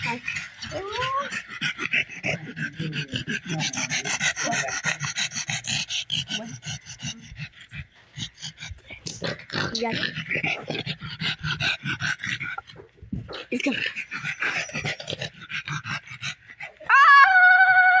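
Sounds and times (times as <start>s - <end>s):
dog squealing: 0.0s - 1.4s, 16.8s - 18.0s.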